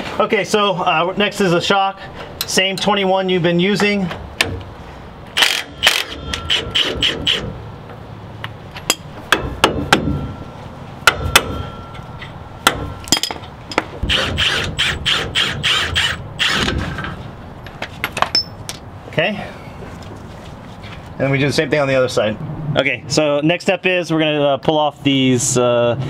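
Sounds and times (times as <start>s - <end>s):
impact wrench hammering: 8.8s - 10.4s, 11.0s - 17.1s
metallic clinks: 18.2s - 18.7s.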